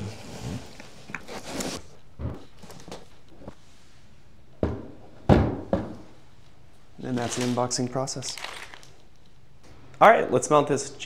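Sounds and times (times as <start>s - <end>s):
foam packing rustling: 0.0s - 1.9s, 2.5s - 3.2s, 7.0s - 9.0s.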